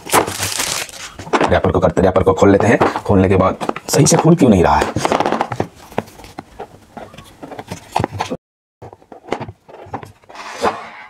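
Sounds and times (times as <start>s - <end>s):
cardboard box scraping and rubbing: 7.1s - 11.0s.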